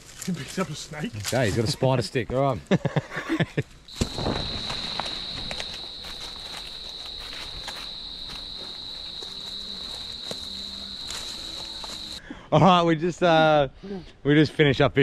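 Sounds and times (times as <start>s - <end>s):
footsteps through grass and leaves: 0.0s - 1.7s, 3.9s - 12.2s
insect high-pitched drone: 3.9s - 12.2s.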